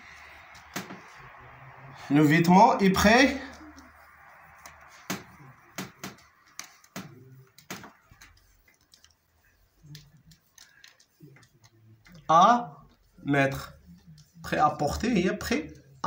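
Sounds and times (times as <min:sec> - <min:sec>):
marker pen scratching on paper: 0:03.5 - 0:16.0.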